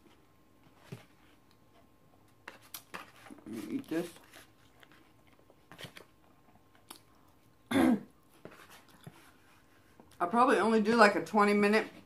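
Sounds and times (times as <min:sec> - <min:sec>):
faint chewing: 0:01.3 - 0:10.2
person coughing: 0:07.7 - 0:08.1.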